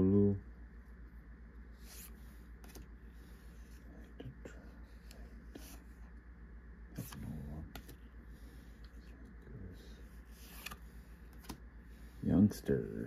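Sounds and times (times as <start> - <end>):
steady low hum: 0.0 - 13.0
card rustle: 10.2 - 11.6
trading cards swishing and flicking: 10.2 - 11.6.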